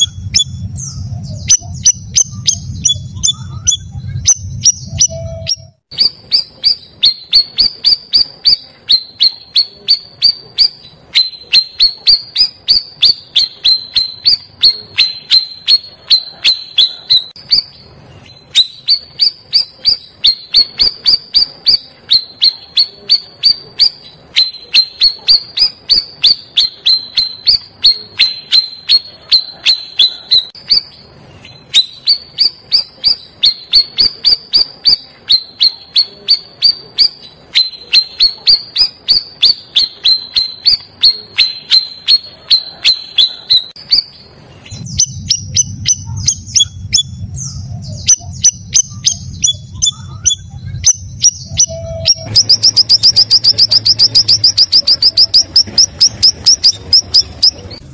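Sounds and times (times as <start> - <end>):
low hum: 0.0 - 8.4, 43.8 - 57.9
bird chirping: 0.0 - 57.9.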